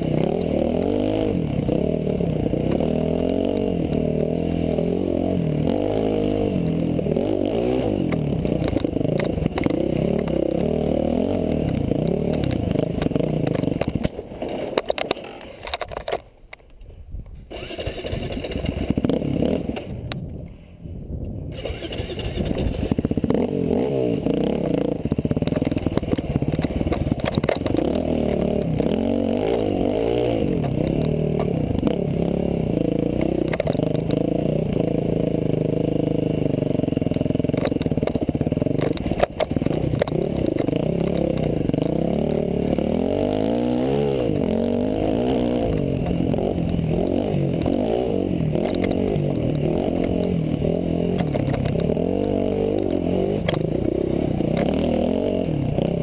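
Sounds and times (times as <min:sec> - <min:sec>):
dirt bike engine revving: 0:00.0 - 0:14.1, 0:17.5 - 0:20.0, 0:21.5 - 0:56.0
rattle: 0:25.2 - 0:28.9.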